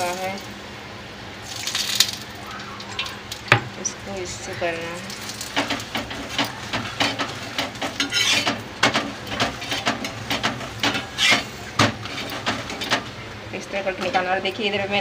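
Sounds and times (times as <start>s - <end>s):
metal spatula scraping and knocking: 5.6s - 13.1s.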